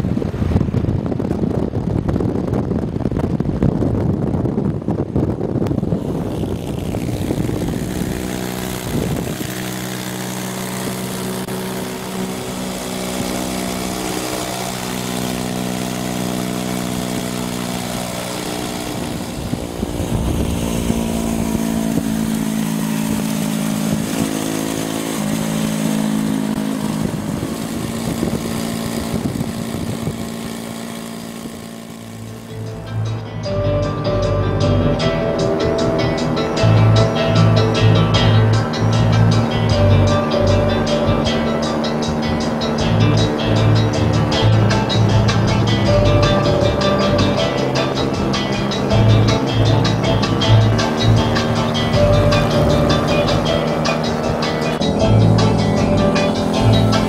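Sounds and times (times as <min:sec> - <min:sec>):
motorcycle engines running: 0:00.0 - 0:57.0.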